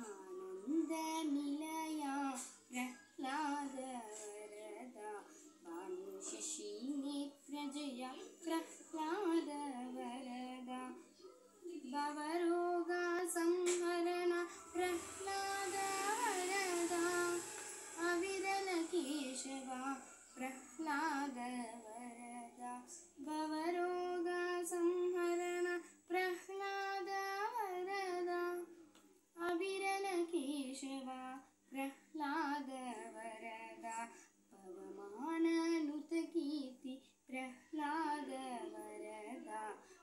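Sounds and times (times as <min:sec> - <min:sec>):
girl singing solo: 0:11.9 - 0:28.7.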